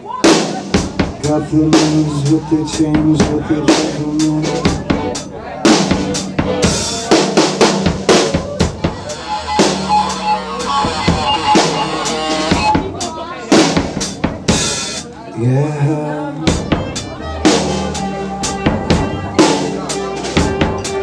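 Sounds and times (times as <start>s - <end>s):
drum kit with cymbals: 0.0s - 15.2s, 16.3s - 21.0s
rock band instrumental: 0.0s - 15.5s, 16.3s - 21.0s
held melodic notes: 1.2s - 13.6s, 14.5s - 21.0s.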